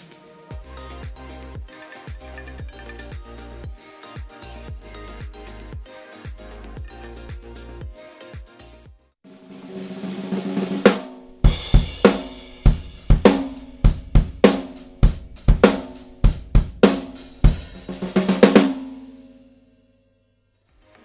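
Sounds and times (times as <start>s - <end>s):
kick drum thumps: 11.5s - 17.7s.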